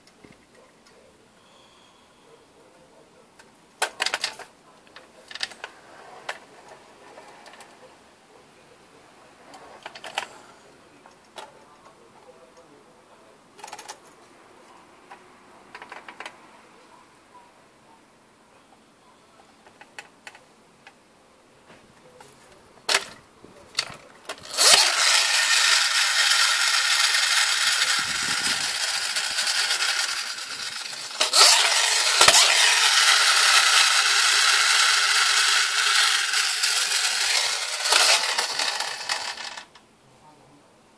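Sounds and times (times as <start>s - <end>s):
toy friction motor whirring: 24.3s - 39.8s.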